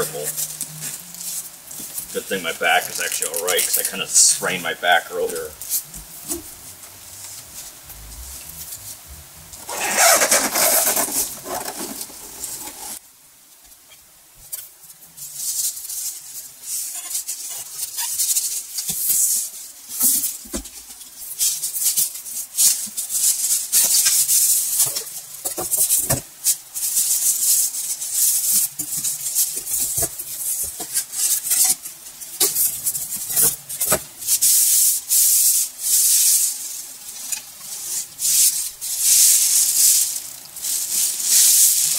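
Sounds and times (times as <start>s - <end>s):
plastic wrapping crinkling: 0.0s - 4.6s, 9.6s - 13.0s, 15.2s - 41.9s
foam inserts scraping: 9.6s - 13.0s.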